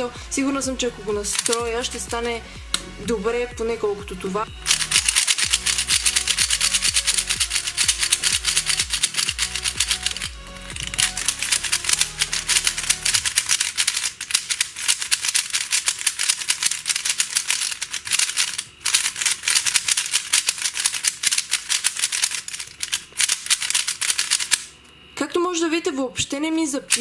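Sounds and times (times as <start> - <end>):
puzzle cube clicking while turned: 1.3 - 1.6, 4.6 - 24.7.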